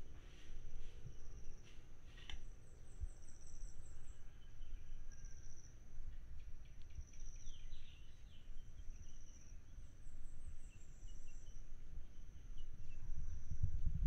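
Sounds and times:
bird chirping: 6.4s - 13.4s.

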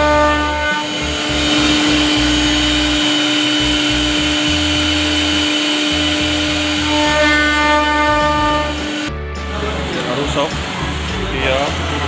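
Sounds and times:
wood router spindle whine: 0.0s - 9.1s.

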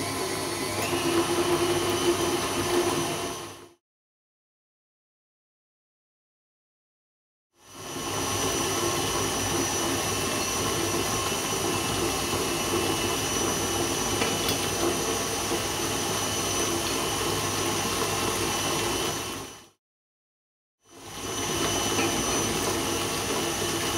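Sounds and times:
stand mixer motor whining: 0.0s - 3.8s, 7.7s - 19.7s, 20.9s - 23.9s.

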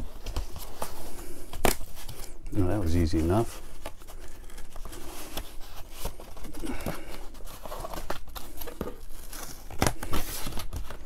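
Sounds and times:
cardboard and plastic rustling: 0.0s - 11.0s.

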